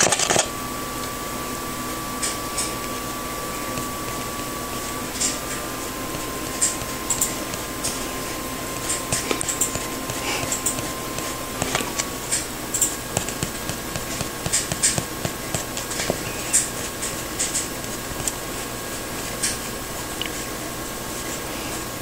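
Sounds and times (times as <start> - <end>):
thin constant tone: 0.5 - 22.0
kitten paws ticking on wooden floor: 3.6 - 18.4.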